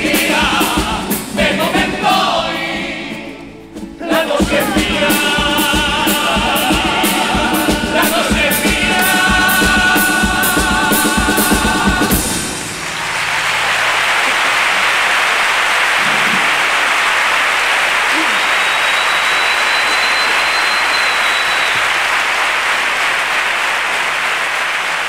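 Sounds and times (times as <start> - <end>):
drum beats: 0.0 - 2.4, 3.8 - 13.5
male choir singing: 0.0 - 3.4, 4.0 - 12.5
guitars: 0.0 - 13.6, 16.0 - 16.8
audience applauding: 12.1 - 25.0.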